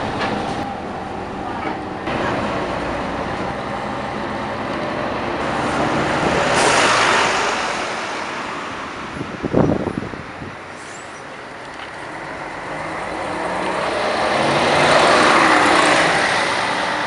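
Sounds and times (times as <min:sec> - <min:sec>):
passing vehicle: 0:00.0 - 0:17.0
short loud rumble: 0:05.4 - 0:10.2.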